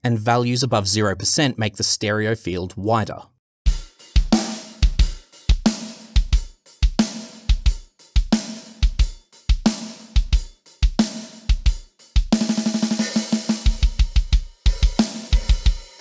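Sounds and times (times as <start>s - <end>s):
kick drum: 13.7s - 15.8s.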